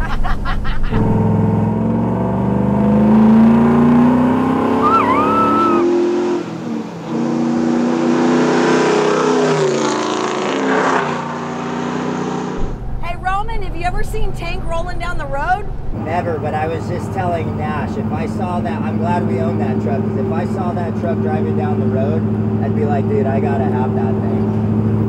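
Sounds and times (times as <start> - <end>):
engine accelerating hard: 0.9 - 12.8, 15.8 - 25.0.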